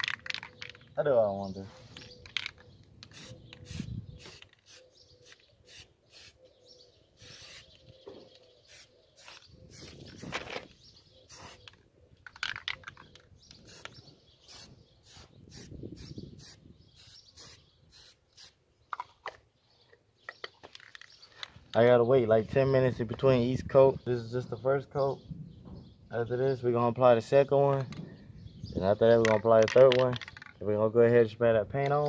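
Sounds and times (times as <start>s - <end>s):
aerosol can clicking and hissing: 2.0s - 6.4s, 7.2s - 10.6s, 11.3s - 11.8s, 12.5s - 18.6s.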